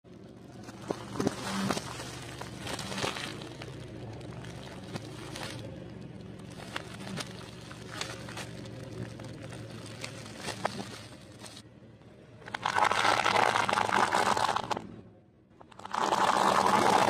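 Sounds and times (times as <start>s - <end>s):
car tyre crunching dry pasta: 0.1s - 11.6s, 12.4s - 14.9s, 15.6s - 17.0s
plastic-wrapped items crackling: 0.1s - 11.6s.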